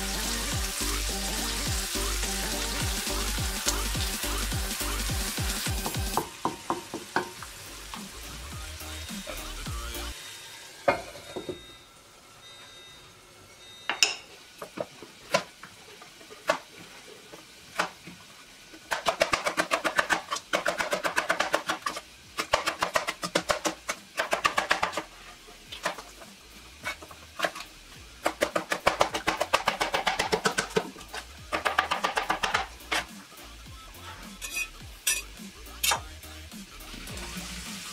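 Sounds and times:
knife chopping on cutting board: 28.3s - 33.1s.

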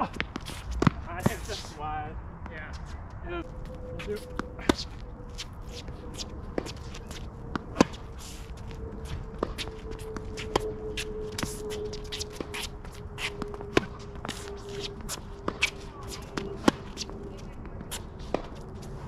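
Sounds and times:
shoes scuffing on court: 0.0s - 1.8s, 3.6s - 19.0s
tennis balls struck by rackets: 6.5s - 8.1s, 9.1s - 17.1s.

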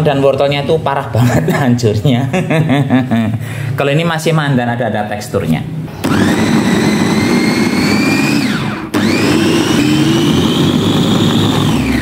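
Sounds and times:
food chopper motor whining: 6.0s - 12.0s.

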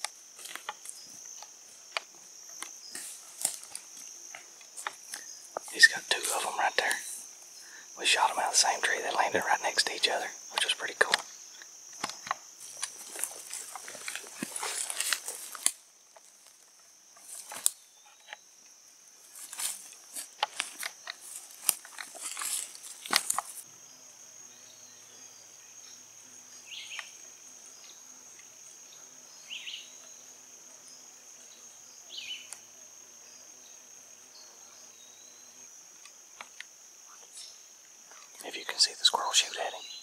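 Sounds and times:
high buzz of insects: 0.0s - 40.0s
short insect chirps: 0.0s - 40.0s
footsteps through leaf litter: 12.9s - 15.6s.

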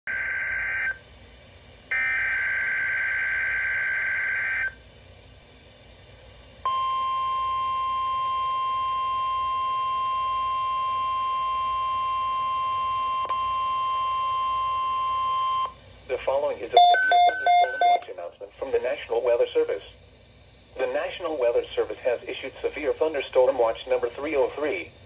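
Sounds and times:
steady warning alarm tone: 0.1s - 1.0s, 1.9s - 4.7s, 16.8s - 18.0s.

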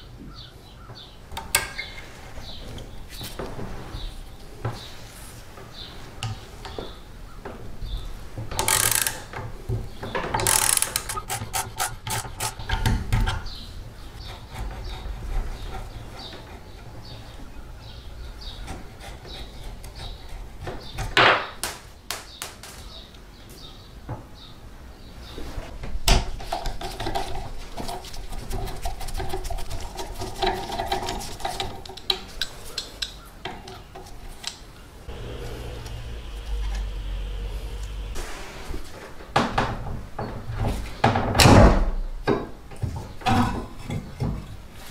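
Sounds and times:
sharp metal clicks: 8.5s - 9.4s, 10.3s - 13.4s
rapid ratchet clicks: 8.6s - 9.3s, 10.4s - 12.6s
screwdriver scraping metal: 10.4s - 13.0s.

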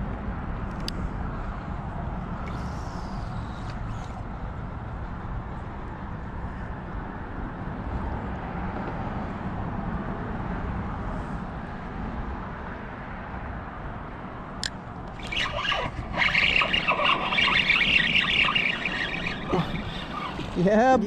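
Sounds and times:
clatter of quick strokes: 15.2s - 20.7s.

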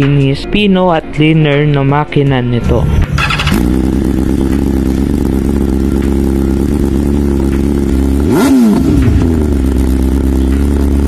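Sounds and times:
engine throttle blip: 3.0s - 10.7s
motorcycle engine idling: 3.1s - 11.0s.

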